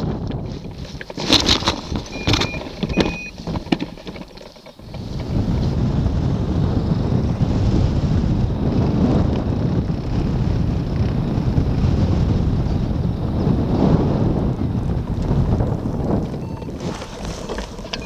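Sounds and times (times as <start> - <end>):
knocks and rattles on grass: 0.0 - 7.5, 14.3 - 18.0
wind buffeting microphone: 0.0 - 18.0
short squeaks: 0.6 - 5.4, 16.4 - 18.0.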